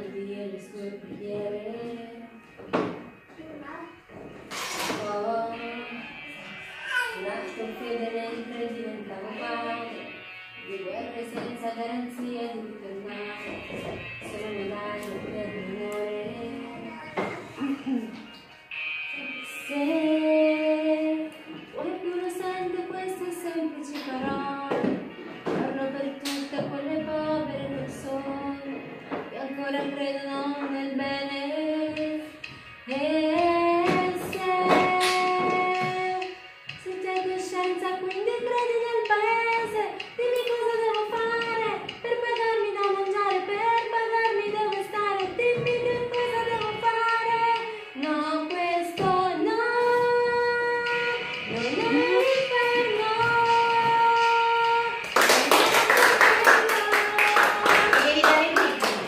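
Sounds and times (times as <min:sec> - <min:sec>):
woman singing long held notes: 0:05.0 - 0:17.8, 0:32.9 - 0:55.1
group clapping in applause: 0:55.0 - 0:59.0.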